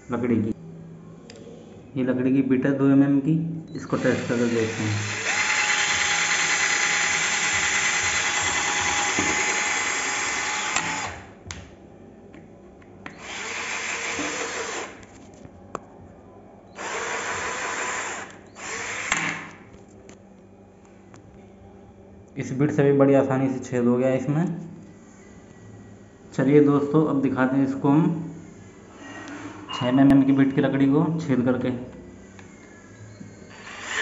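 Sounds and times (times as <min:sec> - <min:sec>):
cordless drill whining: 0:03.8 - 0:11.3, 0:13.1 - 0:15.0, 0:16.8 - 0:19.5, 0:33.5 - 0:34.0.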